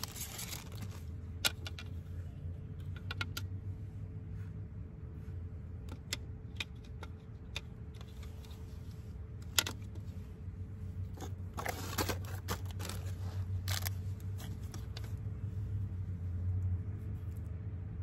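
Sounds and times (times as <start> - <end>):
plastic wrapping rustling: 0.0 - 1.0, 11.5 - 15.0
clicks and knocks of handling: 0.0 - 2.1, 2.7 - 3.6, 5.8 - 10.0
steady low hum: 0.0 - 18.0.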